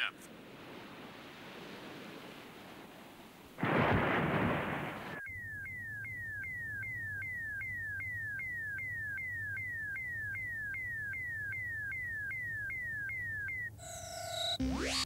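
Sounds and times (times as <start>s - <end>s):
electronic scanning tone: 5.2s - 15.0s.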